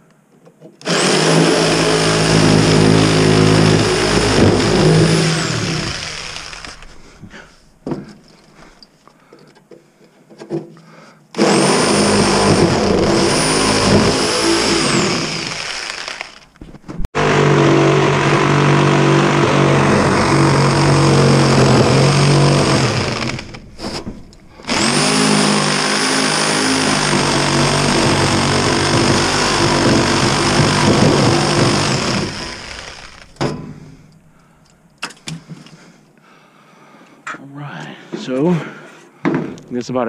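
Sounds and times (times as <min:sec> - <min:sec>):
reciprocating saw motor whine: 0:00.9 - 0:07.0, 0:11.4 - 0:16.5, 0:17.2 - 0:33.4.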